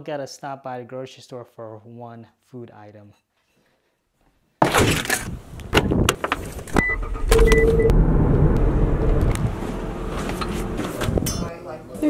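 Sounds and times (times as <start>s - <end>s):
car engine starting and running: 6.6s - 11.4s
short high car beeps: 6.8s - 8.0s.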